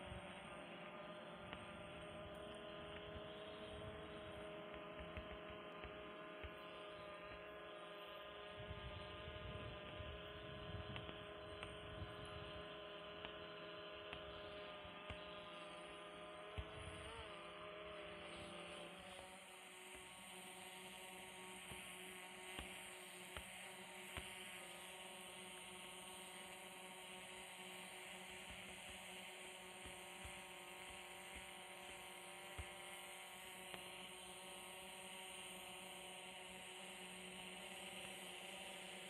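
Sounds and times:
drone propellers whining: 0:00.0 - 0:39.0
wind rumble on microphone: 0:08.6 - 0:12.6.

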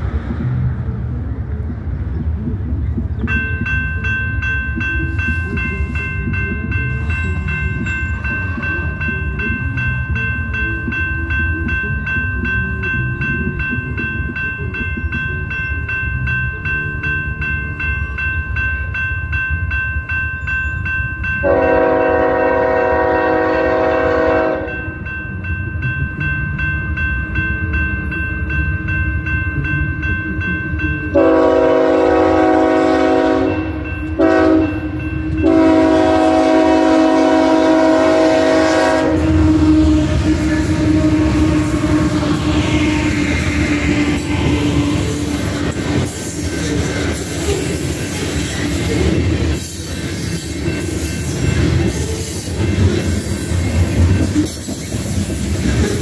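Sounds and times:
train rumble: 0:00.0 - 0:56.0
crossing bell ringing: 0:03.2 - 0:56.0
locomotive horn blasts: 0:21.4 - 0:24.9, 0:31.1 - 0:43.6.

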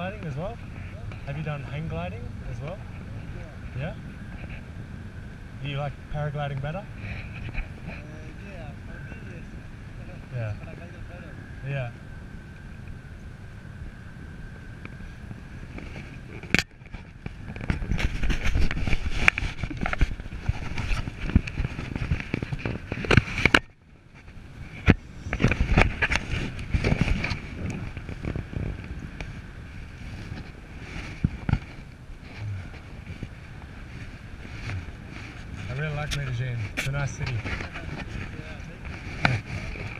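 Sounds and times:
wind buffeting microphone: 0:00.0 - 0:39.9.

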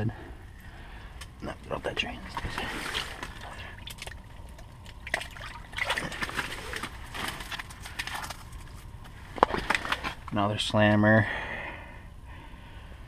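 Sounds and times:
water sloshing and trickling: 0:01.4 - 0:10.4.

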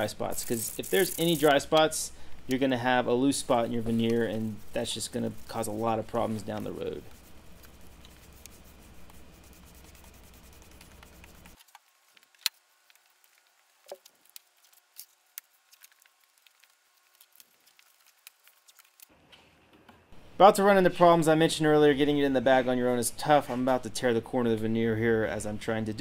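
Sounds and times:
faint low hum: 0:00.0 - 0:11.6.

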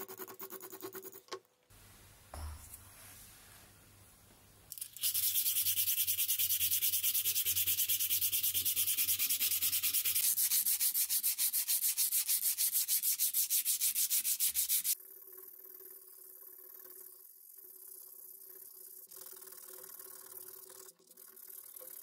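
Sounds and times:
sandpaper scratching on metal: 0:05.0 - 0:15.0.

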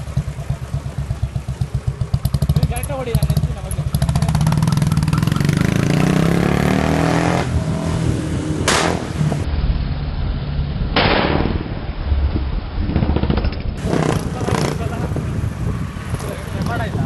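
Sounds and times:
motorcycle engine accelerating: 0:00.0 - 0:09.5, 0:12.8 - 0:17.0
exhaust backfire bangs: 0:08.6 - 0:09.8, 0:10.8 - 0:14.9.

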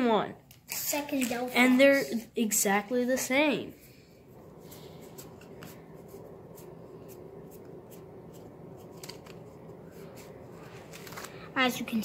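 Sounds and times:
trading cards flicking and rustling: 0:04.7 - 0:11.5.

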